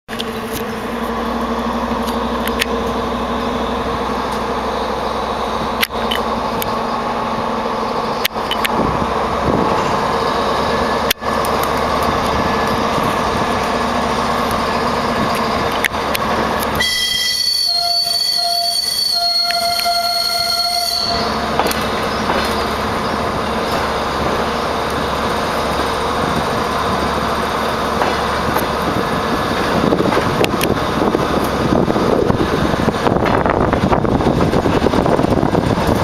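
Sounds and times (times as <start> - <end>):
train engine drone: 0.1 - 36.0
train wheel squeal: 16.6 - 24.8.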